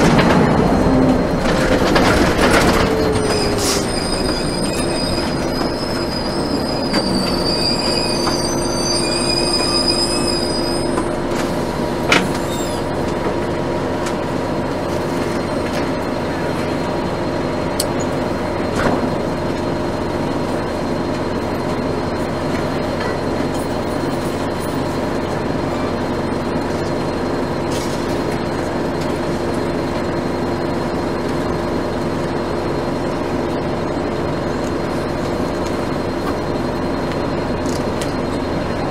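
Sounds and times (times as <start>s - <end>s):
high-pitched squeal: 0.0s - 11.2s
diesel bus engine droning: 0.0s - 38.9s.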